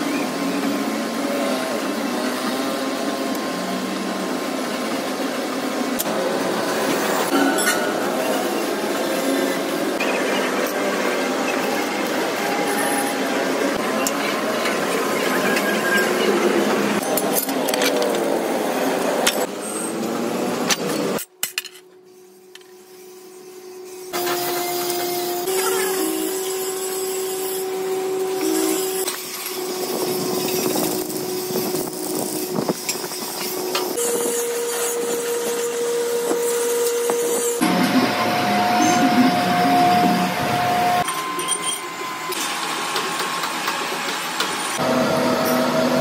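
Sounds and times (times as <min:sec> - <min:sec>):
steady machine hum: 0:27.6 - 0:42.3.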